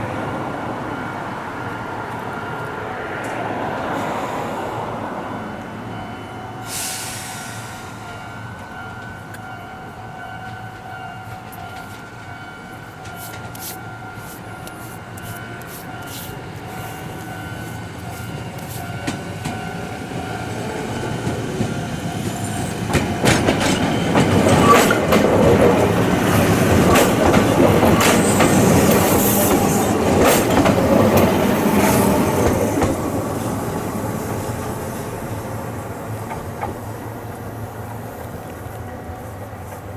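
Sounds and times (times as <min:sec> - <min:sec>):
electric train passing: 0:00.0 - 0:39.9
wheels clicking over rail joints: 0:10.3 - 0:16.3, 0:22.8 - 0:33.2.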